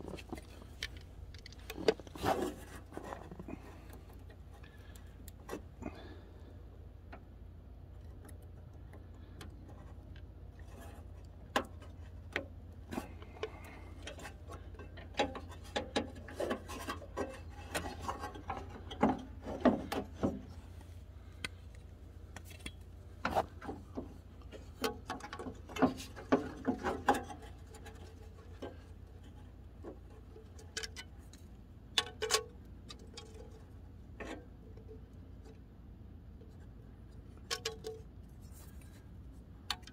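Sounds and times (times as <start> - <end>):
steady low hum: 0.0 - 39.9.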